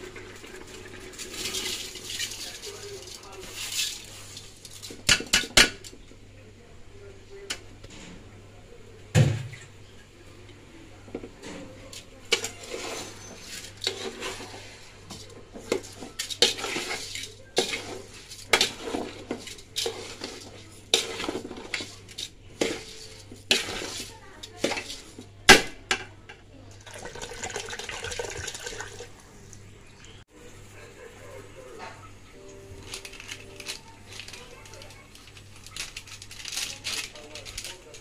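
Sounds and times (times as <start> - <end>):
water pouring into pot: 0.0 - 3.7, 26.7 - 29.2
metal spatula scraping rice in pot: 12.3 - 25.3.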